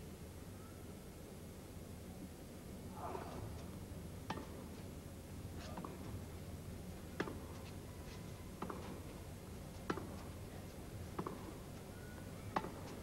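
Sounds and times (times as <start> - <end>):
faint low hum: 0.0 - 13.0
tennis racquet hitting ball: 9.9 - 10.3, 11.2 - 11.5.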